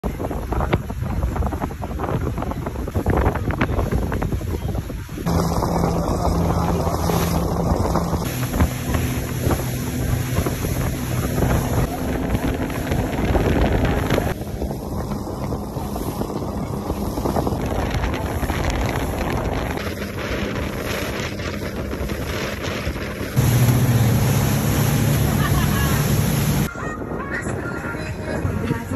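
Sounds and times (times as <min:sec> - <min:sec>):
water rushing along hull: 0:00.0 - 0:28.9
wind buffeting microphone: 0:00.0 - 0:28.9
boat engine drone: 0:04.8 - 0:26.8.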